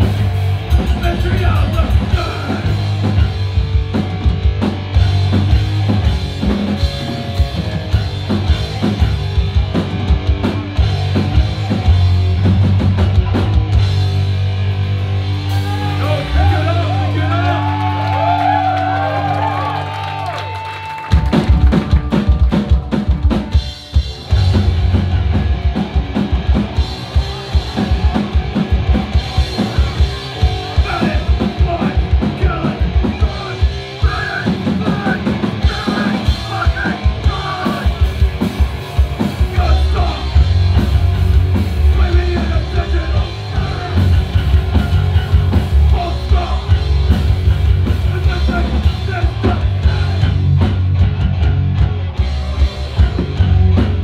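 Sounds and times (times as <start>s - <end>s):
live rock band playing: 0.0s - 54.0s.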